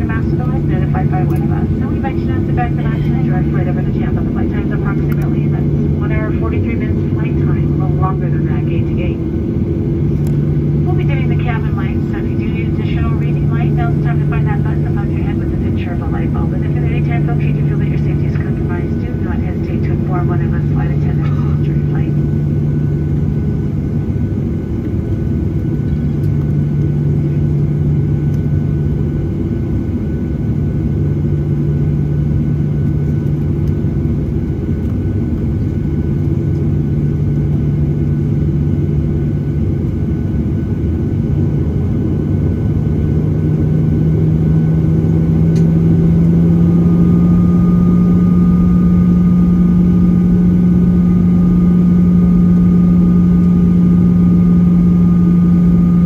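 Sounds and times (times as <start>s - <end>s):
jet engines humming in cabin: 0.0s - 56.0s.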